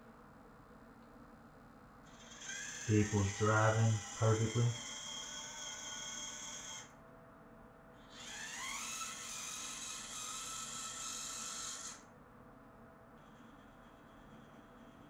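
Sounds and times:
electric toy car motor whining: 2.1s - 7.0s, 8.0s - 12.1s.

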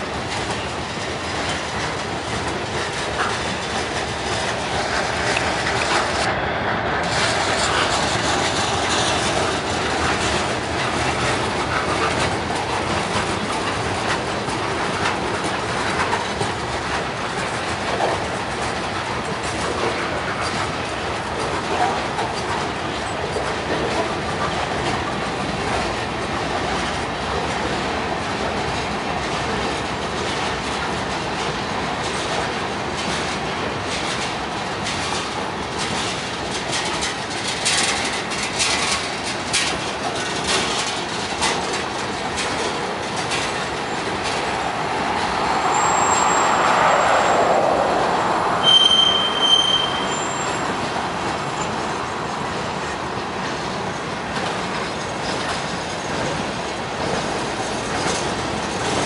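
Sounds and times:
wheels clicking over rail joints: 0.0s - 6.3s, 7.0s - 59.0s
freight train cars rumbling: 0.0s - 59.0s
train wheels squealing: 45.6s - 48.0s, 48.6s - 50.8s.

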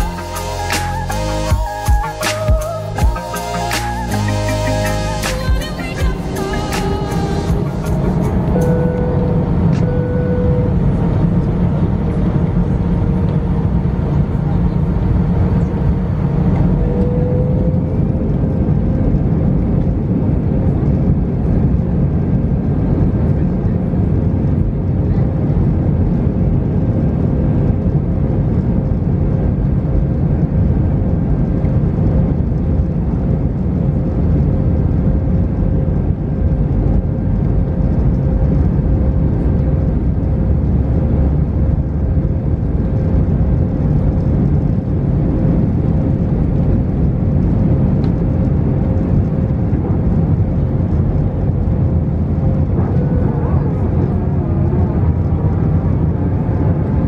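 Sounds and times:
airplane cabin engine rumble: 0.0s - 57.0s.

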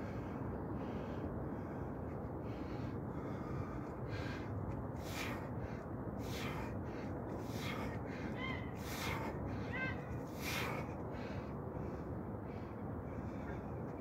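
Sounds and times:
low background rumble: 0.0s - 14.0s.

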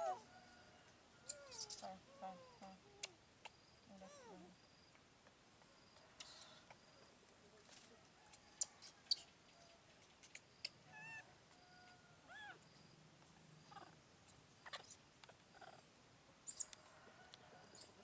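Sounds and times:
baby monkey squeaks: 1.2s - 2.5s, 14.6s - 15.0s, 16.5s - 16.7s
baby monkey coos: 1.2s - 3.2s, 10.9s - 11.3s, 12.3s - 12.6s, 13.7s - 14.0s, 14.6s - 15.9s.

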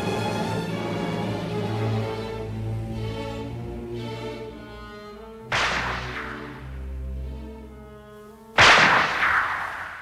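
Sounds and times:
orchestral strings: 0.0s - 9.7s
loud crash: 5.5s - 6.8s, 8.6s - 10.0s.

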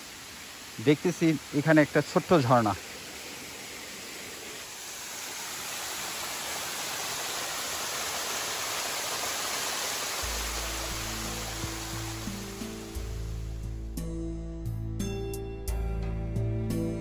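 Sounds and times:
waterfall rushing: 0.0s - 13.7s
background music with low notes: 10.2s - 17.0s.

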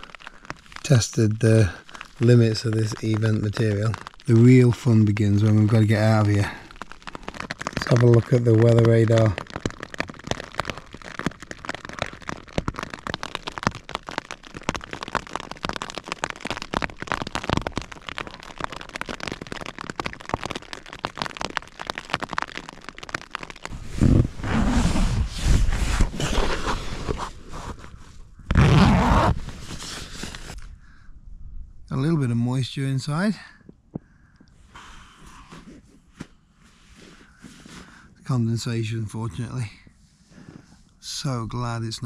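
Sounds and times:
rain pattering on fabric: 0.0s - 31.0s, 31.9s - 42.0s
loud fabric rustling: 23.7s - 27.4s, 28.5s - 30.6s.

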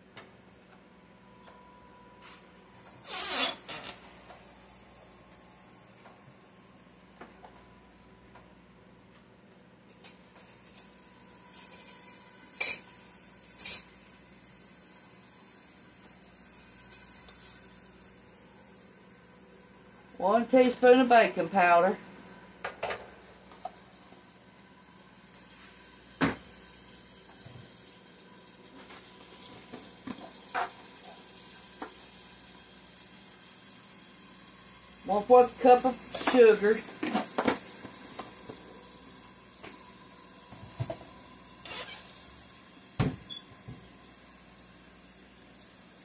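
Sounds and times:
potatoes sizzling in a skillet: 10.4s - 22.6s, 23.2s - 46.0s.

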